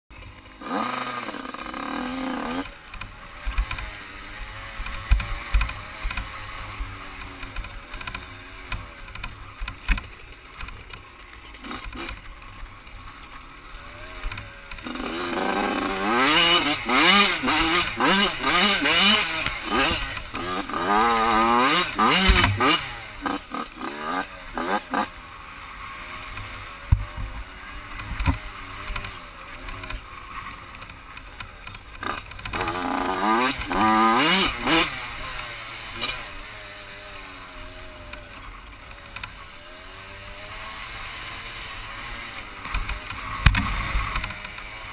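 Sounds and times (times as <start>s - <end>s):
dirt bike engine revving: 0.2s - 44.9s
knocks from bumps: 22.1s - 22.8s.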